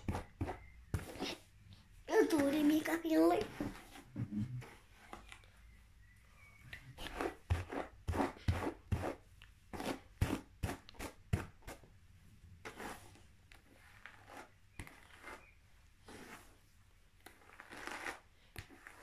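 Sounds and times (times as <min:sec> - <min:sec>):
hairbrush swishing through hair: 0:13.8 - 0:16.6.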